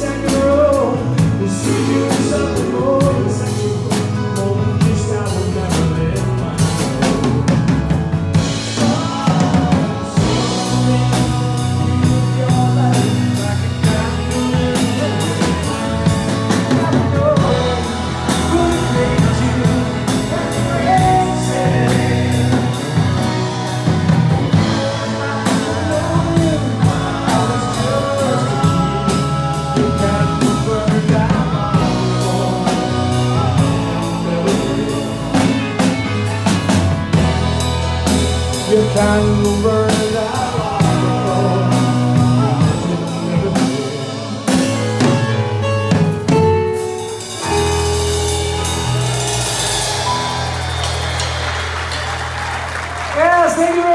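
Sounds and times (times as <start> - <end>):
man singing lead vocals: 0.0 - 50.5, 53.2 - 53.9
drum kit: 0.0 - 53.9
piano chords: 0.0 - 53.9.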